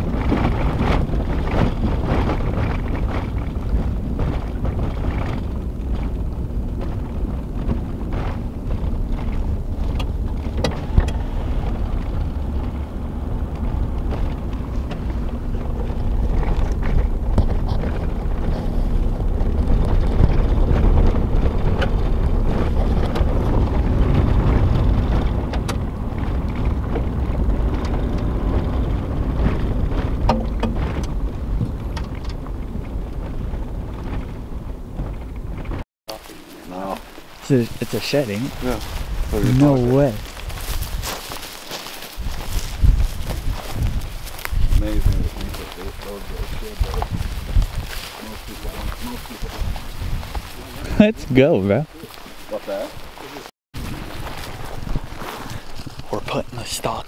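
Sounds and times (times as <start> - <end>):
knocks and rattles: 0.0 - 35.8
truck engine and tyres rumbling: 0.0 - 57.0.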